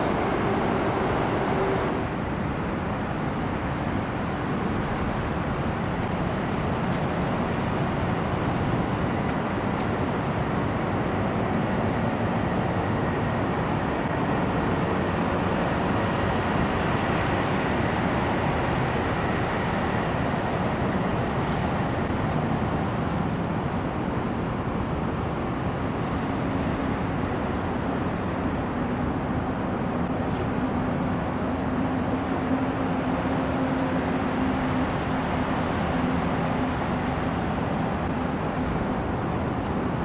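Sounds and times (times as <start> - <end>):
expressway traffic rumble: 0.0 - 40.0
faint high whine: 0.0 - 40.0.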